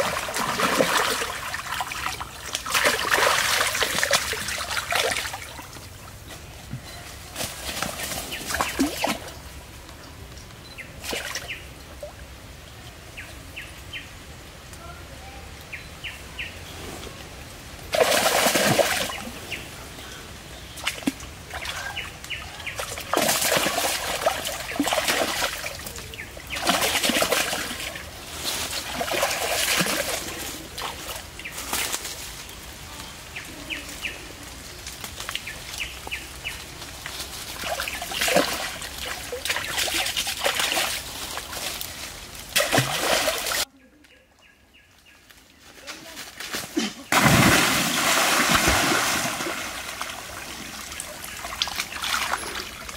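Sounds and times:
stream water splashing: 0:00.0 - 0:06.2, 0:07.4 - 0:09.8, 0:10.8 - 0:12.6, 0:17.6 - 0:19.8, 0:20.6 - 0:32.3, 0:34.8 - 0:43.7, 0:47.1 - 0:52.9.

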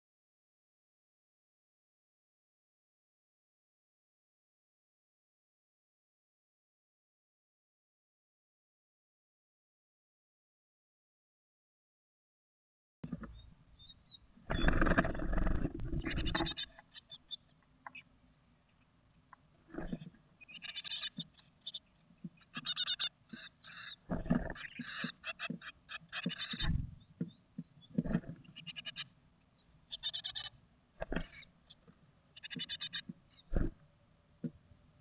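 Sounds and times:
nestlings calling rapidly: 0:13.1 - 0:18.0, 0:19.7 - 0:26.8, 0:27.8 - 0:29.1, 0:29.9 - 0:31.8, 0:32.4 - 0:33.6.

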